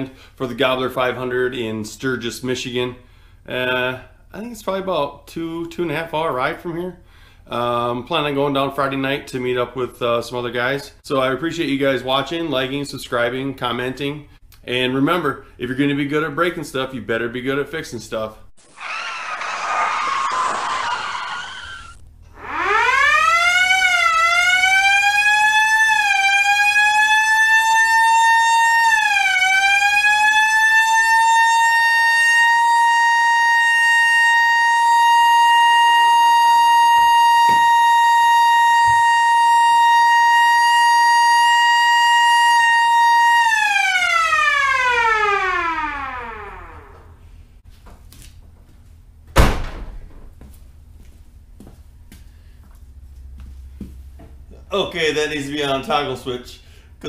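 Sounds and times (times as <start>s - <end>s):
car siren wailing: 18.8s - 47.2s.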